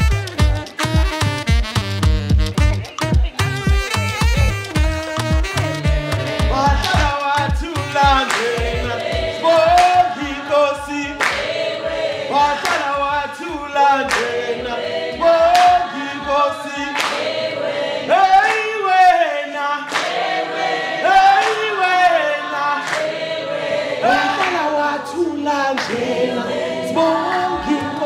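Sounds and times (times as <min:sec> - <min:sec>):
steady low beat: 0:00.0 - 0:17.5
group of voices singing: 0:05.6 - 0:28.0.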